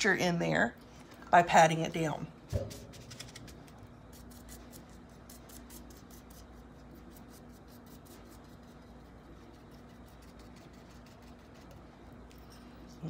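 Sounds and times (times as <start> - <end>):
faint steady hum: 0.0 - 13.0
paintbrush scratchy strokes: 4.1 - 13.0.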